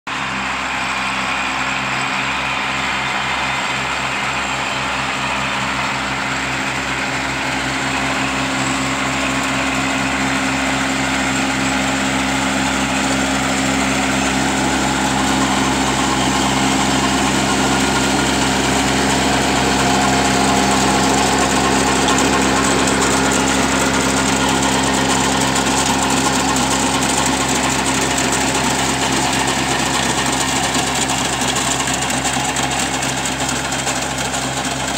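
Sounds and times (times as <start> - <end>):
diesel tractor engine running: 0.1 - 34.9.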